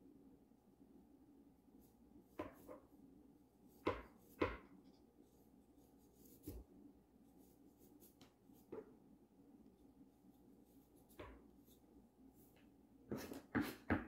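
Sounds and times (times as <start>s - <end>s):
knife chopping on cutting board: 2.3s - 2.9s, 3.8s - 4.7s.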